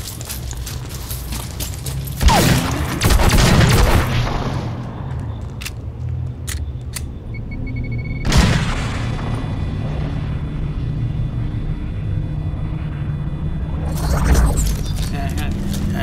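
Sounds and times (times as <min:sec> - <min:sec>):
sharp clicks: 0:05.4 - 0:07.2
electronic beeps: 0:06.6 - 0:08.3, 0:12.5 - 0:16.0
low rumble: 0:08.3 - 0:16.0.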